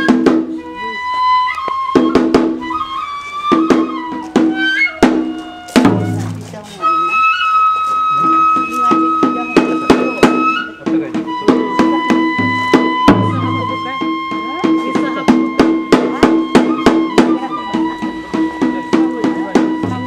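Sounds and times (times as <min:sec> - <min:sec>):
bamboo flute long high notes: 0:00.0 - 0:20.0
quick drum beat: 0:03.5 - 0:06.7, 0:08.2 - 0:20.0.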